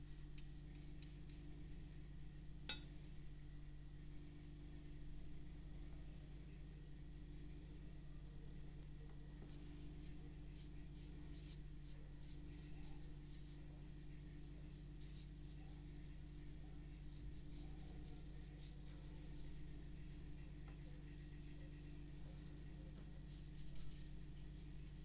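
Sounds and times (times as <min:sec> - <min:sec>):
steady low hum: 0:00.0 - 0:25.0
paintbrush swishing on paper: 0:09.4 - 0:13.8, 0:16.9 - 0:20.3.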